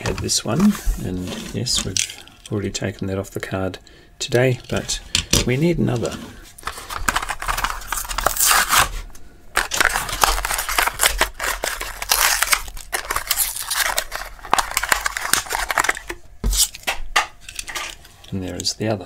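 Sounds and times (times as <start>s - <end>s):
plastic crinkling: 6.6s - 8.9s, 9.5s - 16.8s
cardboard tearing: 6.6s - 9.0s, 9.6s - 16.8s.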